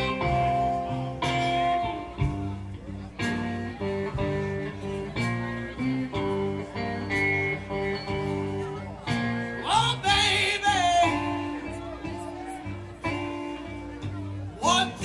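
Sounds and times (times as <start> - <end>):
guitar accompaniment: 0.0 - 15.0
person singing: 9.6 - 11.8, 14.6 - 15.0.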